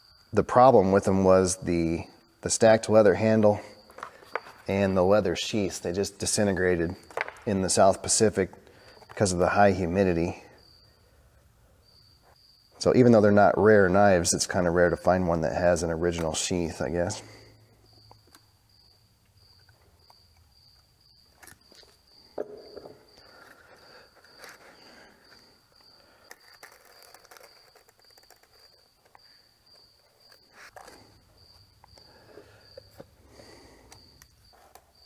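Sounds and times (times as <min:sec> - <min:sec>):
tools knocking on workbench: 0:22.4 - 0:23.0.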